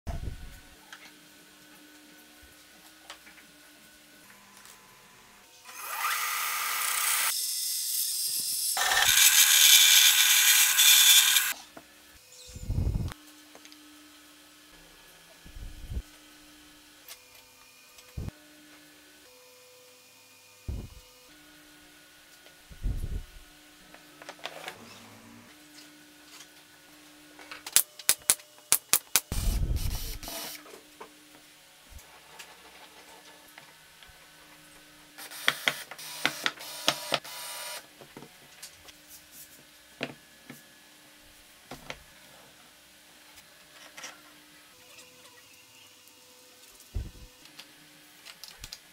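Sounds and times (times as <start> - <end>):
band saw cutting wood: 5.7 - 11.6
cordless drill boring wood: 5.7 - 11.6, 35.2 - 37.8.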